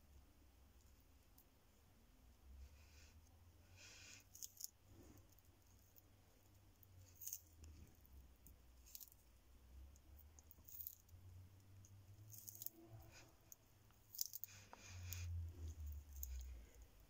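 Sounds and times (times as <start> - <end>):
tortoise chewing leaf clicks: 7.0 - 7.9, 8.8 - 11.2, 11.8 - 16.7.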